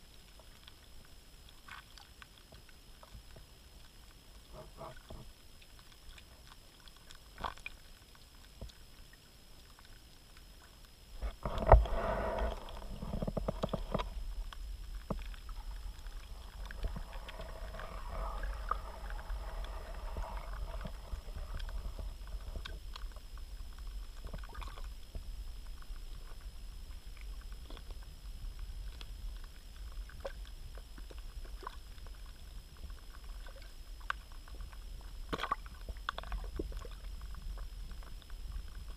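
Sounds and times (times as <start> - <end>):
muffled underwater rumble: 0.0 - 38.9
water sloshing and churning: 0.0 - 38.9
underwater clicks and knocks: 4.5 - 5.3, 11.2 - 25.2, 33.5 - 38.9.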